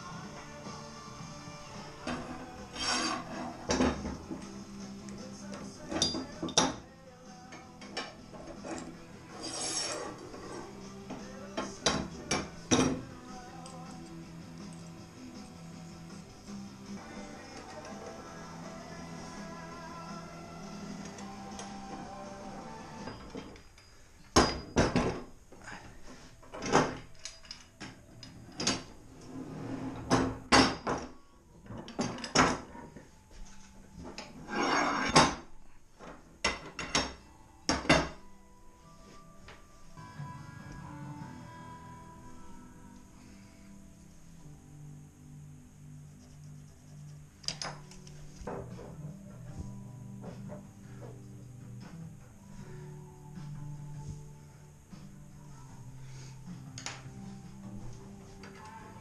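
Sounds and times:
metal scrape: 2.1s - 3.8s, 8.4s - 10.9s, 34.2s - 35.4s.

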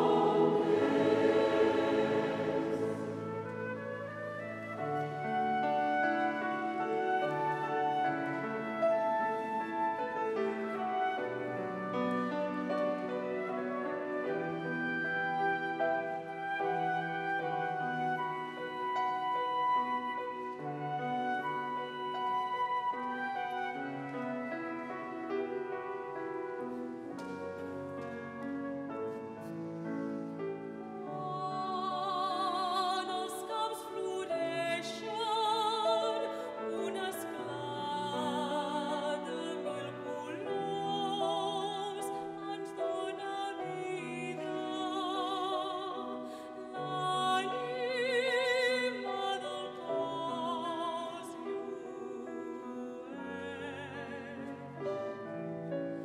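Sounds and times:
soprano singing with vibrato: 0.0s - 11.8s, 30.7s - 55.0s
small orchestra with strings: 0.0s - 56.0s.

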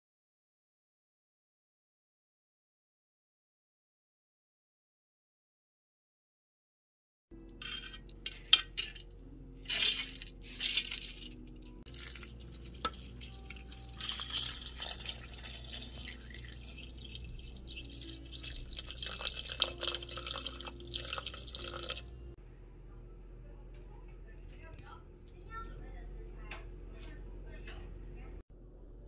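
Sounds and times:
water pouring into bowl: 11.9s - 22.2s.

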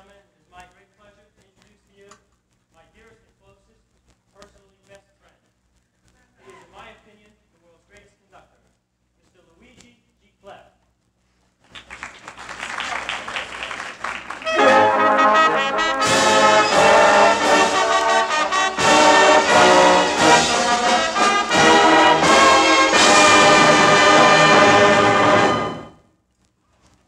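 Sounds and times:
symphonic band playing brass passage: 13.5s - 26.0s.

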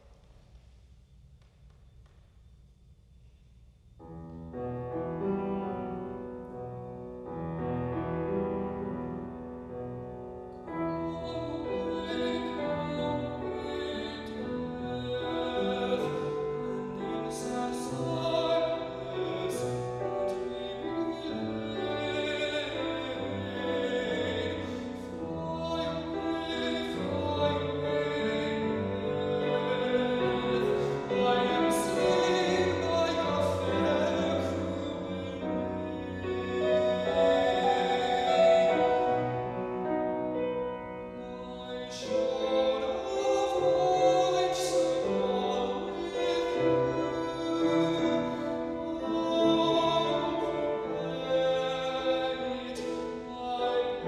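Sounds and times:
grand piano accompaniment: 4.0s - 54.0s
man singing classically: 10.9s - 39.3s, 41.2s - 54.0s.

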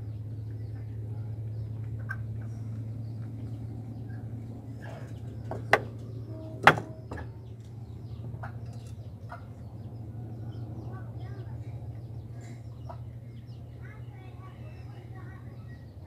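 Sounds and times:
steady low hum: 0.0s - 16.0s
bird chirps and calls: 3.5s - 16.0s
sharp knocks: 5.5s - 6.0s, 6.6s - 7.4s.

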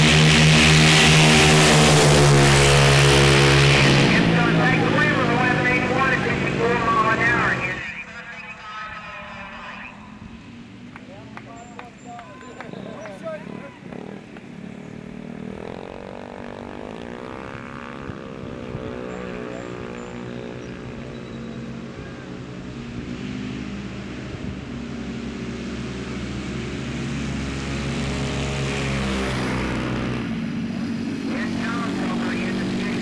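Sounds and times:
scooter engines revving: 0.0s - 33.0s.

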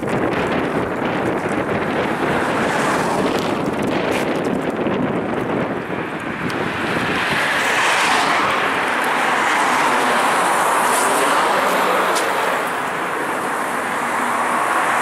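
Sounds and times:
van road and wind noise: 0.0s - 15.0s.

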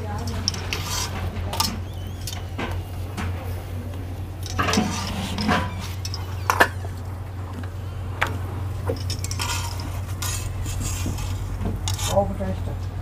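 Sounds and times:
steady low hum: 0.0s - 13.0s
metal spatula scraping on griddle: 0.1s - 2.4s, 4.4s - 6.8s, 9.0s - 12.4s.

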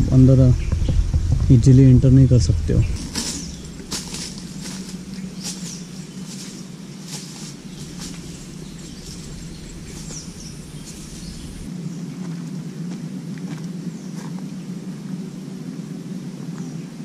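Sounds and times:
low hum: 0.0s - 13.4s
rustling in undergrowth: 2.7s - 11.7s
faint bird chirps: 2.8s - 11.7s.

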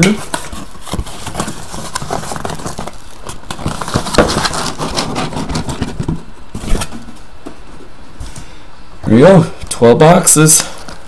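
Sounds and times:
cardboard scraping and rustling: 0.1s - 7.7s.

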